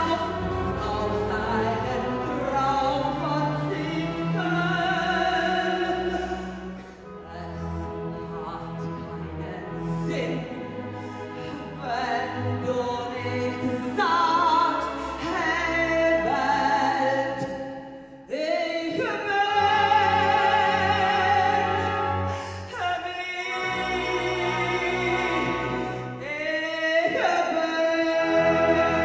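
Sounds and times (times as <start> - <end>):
symphony orchestra playing: 0.0 - 17.4, 18.8 - 29.0
soprano singing operatic melody: 0.0 - 29.0.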